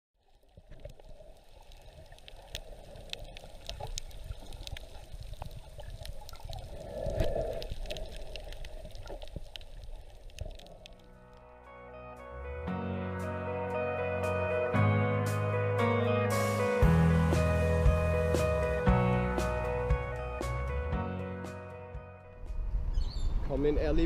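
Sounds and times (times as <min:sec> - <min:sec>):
small underwater clicks: 0:00.2 - 0:11.5.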